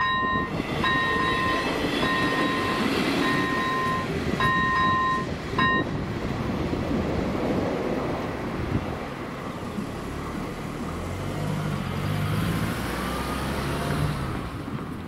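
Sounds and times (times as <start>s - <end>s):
level crossing warning bell: 0.0s - 6.0s
train passing over rails: 0.0s - 11.0s.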